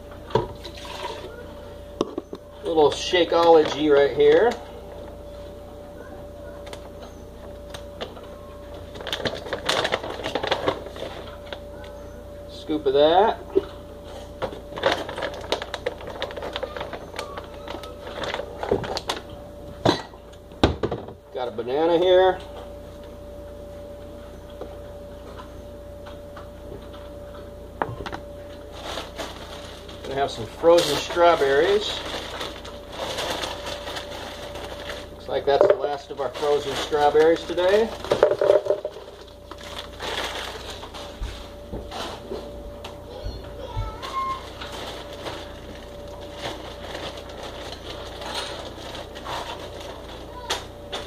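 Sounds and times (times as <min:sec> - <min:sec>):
faint steady hum: 0:00.0 - 0:51.0
plastic pouch crinkling: 0:08.9 - 0:11.5, 0:14.7 - 0:19.2, 0:30.8 - 0:35.2, 0:35.9 - 0:41.2.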